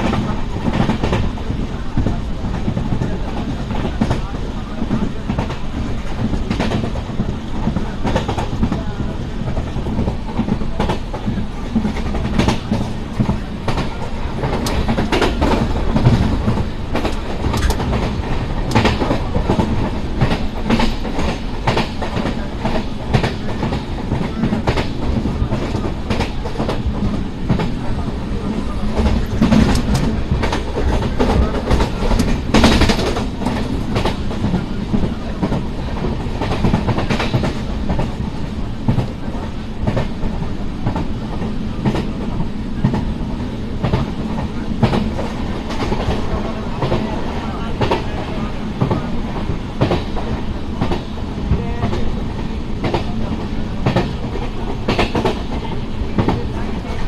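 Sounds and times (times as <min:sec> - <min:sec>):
train wheels rumbling on rail: 0:00.0 - 0:57.0
wheels clicking over rail joints: 0:09.8 - 0:27.8.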